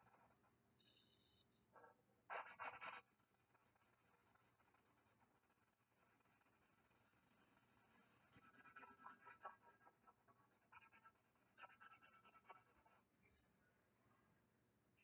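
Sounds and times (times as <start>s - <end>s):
marker scratching on paper: 2.3s - 13.4s.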